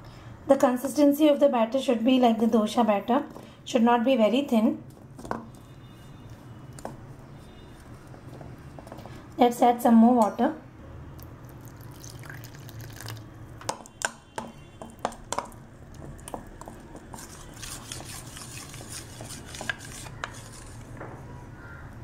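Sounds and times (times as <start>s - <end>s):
spoon scraping through batter: 16.0s - 20.9s.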